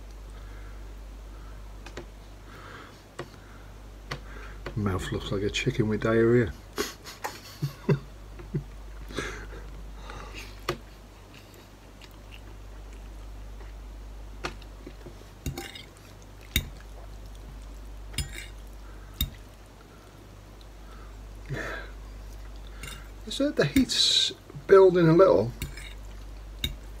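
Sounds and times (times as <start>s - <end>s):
person chewing noodles: 11.2s - 13.8s, 14.6s - 23.2s
fork clicking against bowl: 19.2s - 19.4s, 26.6s - 26.8s.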